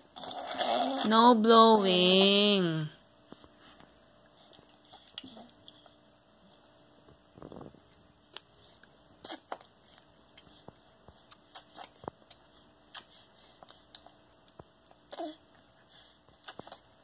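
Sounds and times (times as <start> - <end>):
baby mouth clicks and lip smacks: 8.3 - 9.8, 10.4 - 15.6, 16.3 - 16.8.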